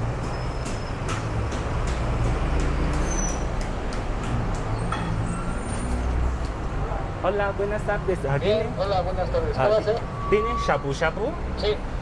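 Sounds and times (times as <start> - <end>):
bus close by: 0.0 - 7.0
road vehicles rumbling: 0.0 - 12.0.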